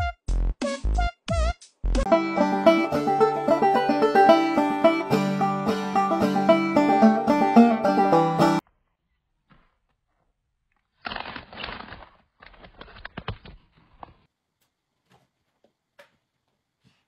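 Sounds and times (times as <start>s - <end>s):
plastic chip bag crinkling: 10.8s - 14.0s.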